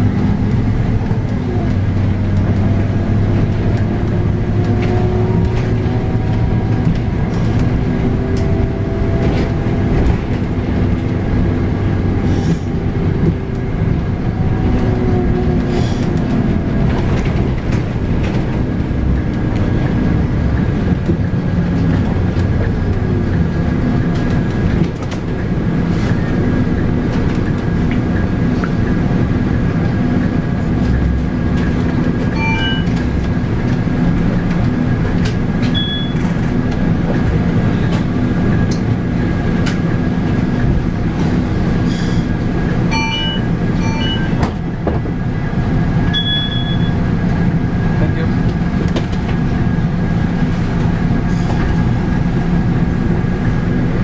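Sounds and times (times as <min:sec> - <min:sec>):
bus engine drone: 0:00.0 - 0:54.0
road rumble: 0:00.0 - 0:54.0
brief high tone: 0:32.4 - 0:33.0.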